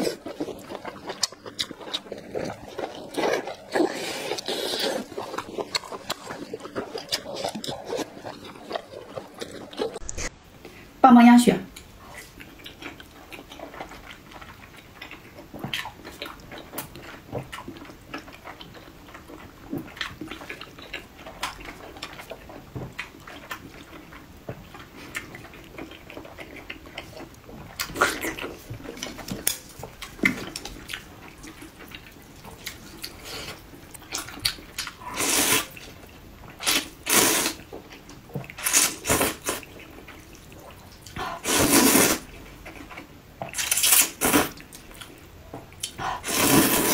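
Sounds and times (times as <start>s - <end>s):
wet chewing: 0.0s - 10.3s, 11.8s - 46.9s
wet slurps: 41.2s - 42.3s, 46.0s - 46.9s.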